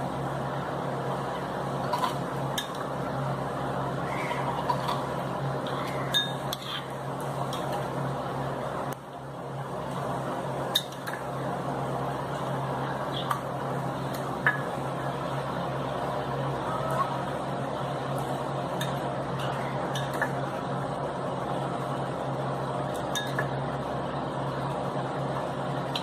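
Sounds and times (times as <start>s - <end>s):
background hum: 0.0s - 26.0s
spoon clinking against glass bowl: 6.1s - 6.6s.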